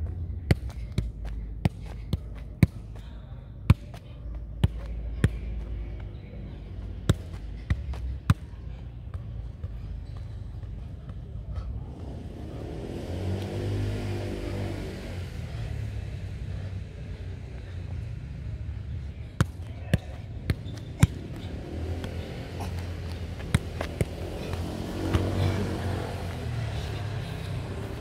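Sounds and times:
passing vehicle engines hum: 0:00.0 - 0:28.0
football thuds: 0:19.4 - 0:26.4.

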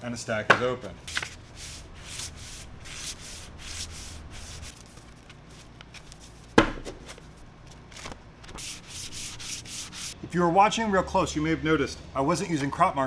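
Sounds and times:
paper envelopes swishing: 0:01.1 - 0:10.1.

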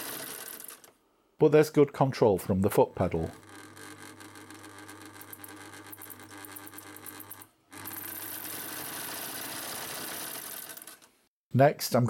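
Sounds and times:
sewing machine motor hum: 0:00.0 - 0:01.0, 0:03.2 - 0:11.2.

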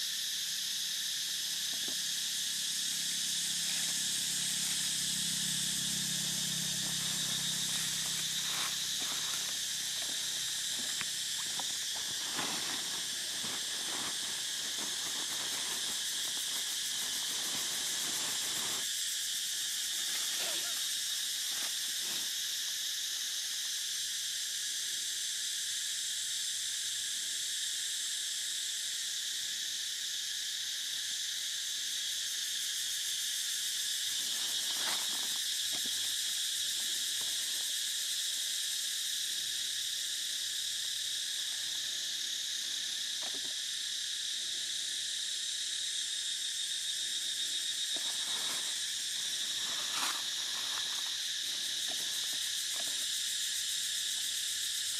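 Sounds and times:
insect chorus drone: 0:00.0 - 0:54.9.

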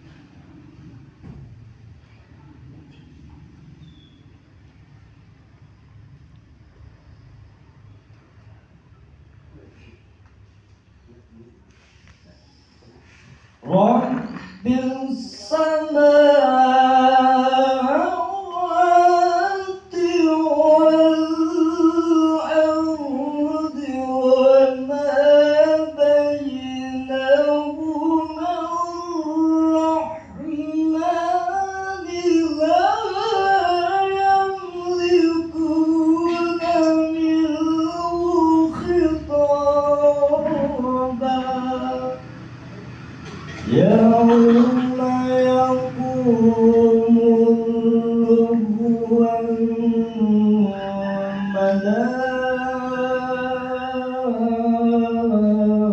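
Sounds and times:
man reciting melodically: 0:13.6 - 0:55.9.

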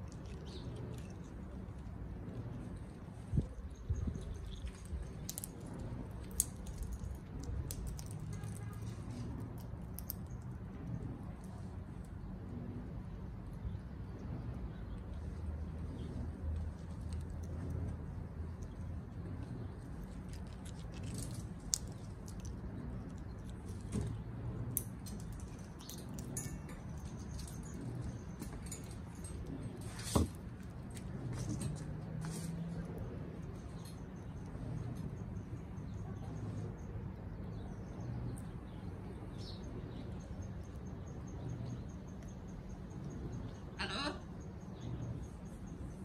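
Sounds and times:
parrot beaks clicking and crunching: 0:00.0 - 0:12.2, 0:14.5 - 0:32.1
steady low hum: 0:00.0 - 0:46.0
steady low rumble: 0:00.0 - 0:46.0.

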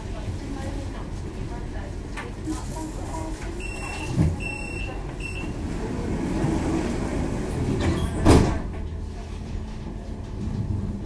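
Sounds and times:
tram humming: 0:00.0 - 0:11.0
door-warning beep: 0:03.6 - 0:05.6.

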